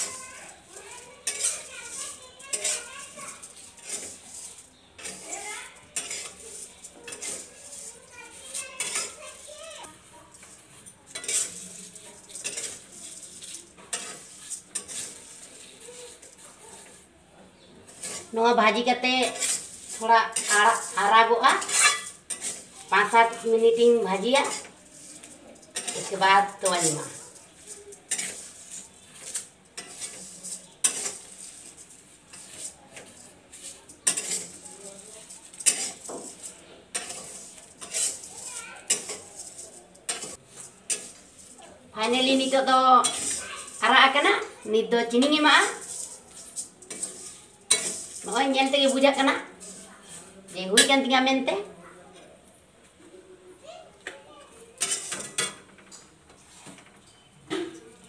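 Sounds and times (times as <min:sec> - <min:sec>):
spatula scraping a wok: 0:00.0 - 0:51.7, 0:54.6 - 0:57.4
light sizzle: 0:00.0 - 0:58.0.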